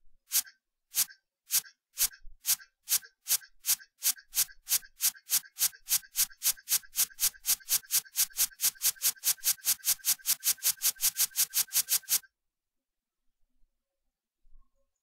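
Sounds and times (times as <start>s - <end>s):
hissy text animation ticks: 0.3s - 12.3s.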